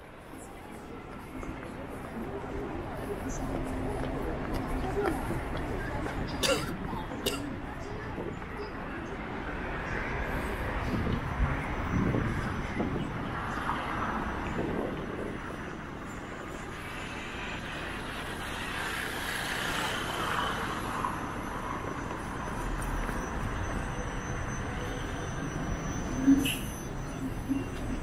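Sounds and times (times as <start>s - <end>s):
buses passing: 0.0s - 28.0s
cars passing: 0.0s - 28.0s
scooters passing: 16.7s - 23.7s.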